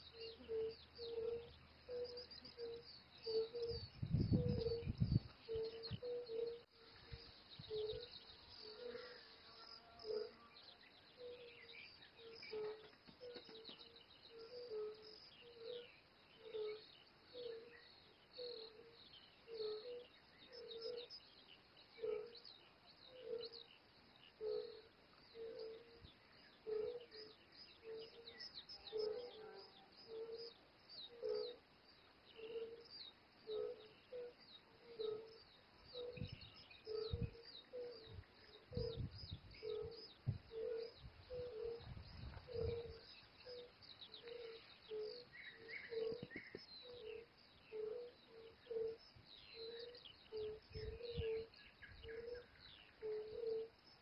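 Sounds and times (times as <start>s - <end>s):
toads calling: 0.0s - 10.5s, 21.9s - 54.0s
small birds chirping: 0.0s - 54.0s
wind buffeting microphone: 3.6s - 6.1s, 36.0s - 43.2s, 50.6s - 51.4s.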